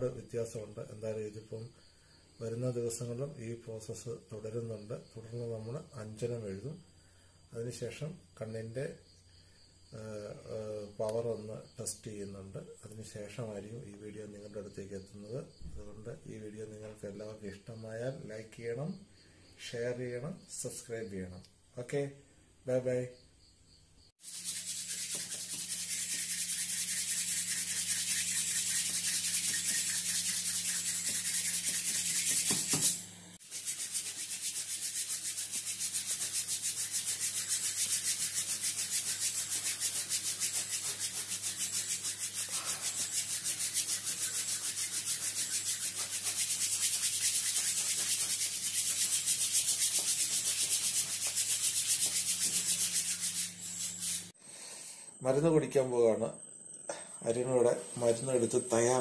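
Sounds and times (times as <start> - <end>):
hands rubbing over skin and cloth: 24.2 - 54.4.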